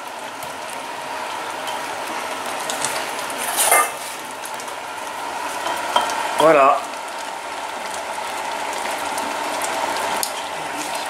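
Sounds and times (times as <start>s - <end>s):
pots bubbling: 0.0s - 11.0s
kitchen utensils clattering: 3.4s - 4.2s.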